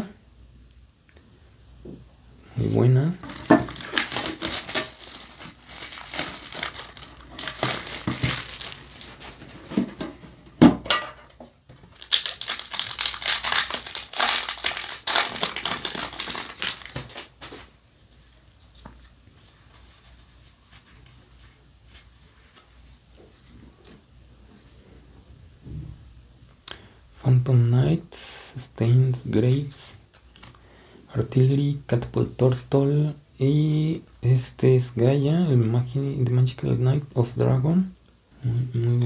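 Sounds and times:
plastic wrapping crinkling and tearing: 3.2 - 9.8, 11.8 - 17.7.

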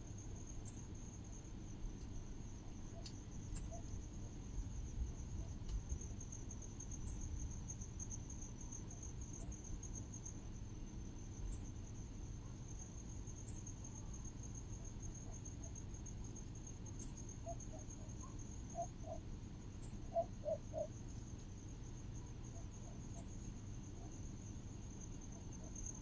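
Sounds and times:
insect pulsing trill: 0.0 - 1.4, 2.4 - 26.0
insect short high chirp: 0.6 - 0.9, 2.9 - 3.9, 16.9 - 21.0, 22.5 - 23.5.

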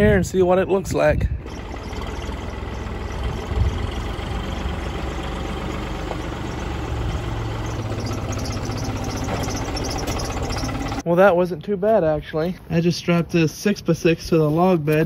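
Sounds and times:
tractor diesel engine running: 0.1 - 11.1.

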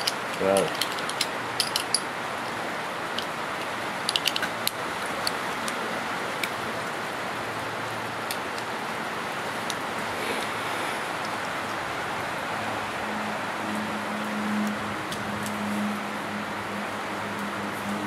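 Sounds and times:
metal cartridges clinking: 0.0 - 2.1, 3.1 - 5.4.

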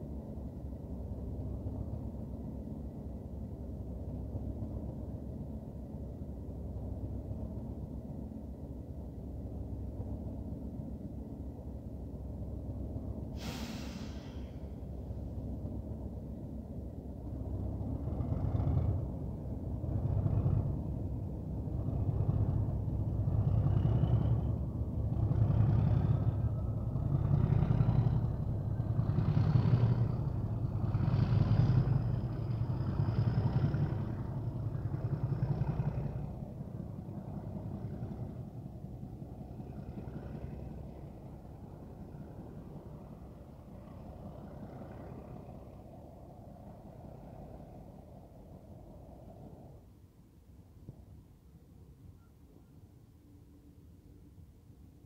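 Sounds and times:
diesel locomotive engine rumbling: 0.0 - 55.0
short sharp hiss: 13.4 - 14.7.

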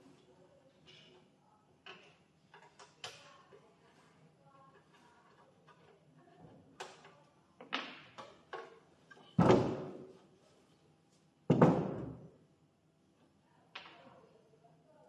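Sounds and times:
heavy thuds on table: 9.4 - 10.0, 11.5 - 12.2.

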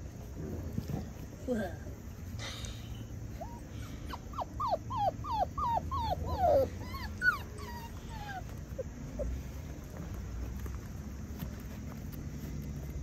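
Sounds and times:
puppy yelping and whining: 3.3 - 9.6.

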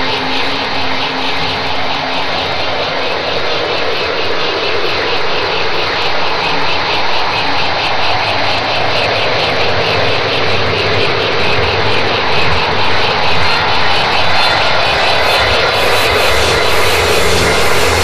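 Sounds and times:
jet-like noise sweeping in pitch: 13.1 - 18.0.

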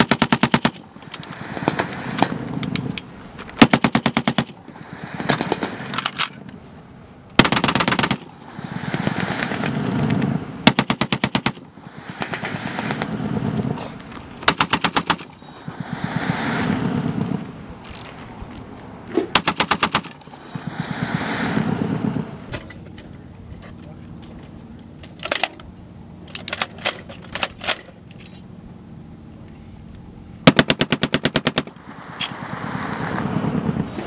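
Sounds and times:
heavy machine gun bursts: 0.0 - 3.0, 3.6 - 6.5, 7.4 - 13.8, 14.4 - 17.3, 19.3 - 22.0, 30.4 - 31.9.

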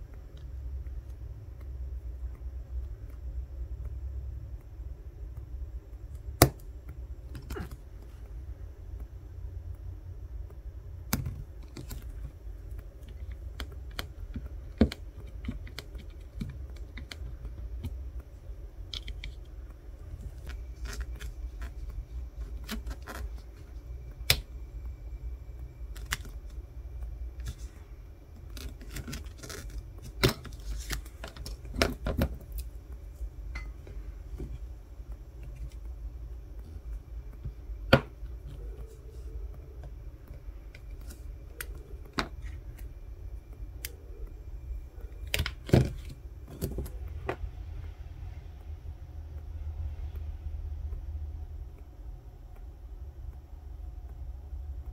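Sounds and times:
steady low hum: 0.0 - 54.9.

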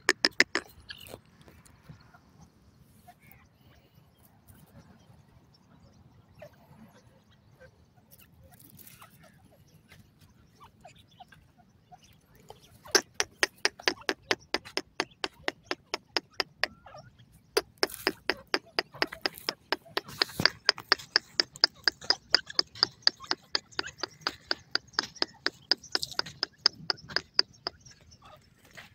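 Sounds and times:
francolin clicking call: 0.0 - 1.2, 12.5 - 16.8, 17.6 - 28.1.

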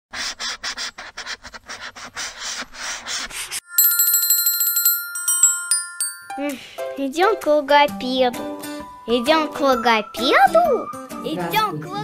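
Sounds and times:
marker scribbling on paper: 0.2 - 3.6
bell ringing in rapid trill: 3.6 - 6.8
bright chime notes: 3.6 - 7.0.

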